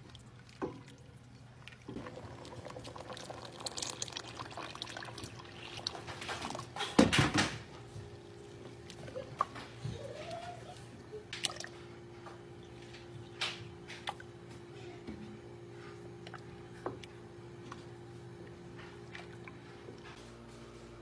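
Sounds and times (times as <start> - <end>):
thick soup bubbling in a pot: 0.0 - 6.9.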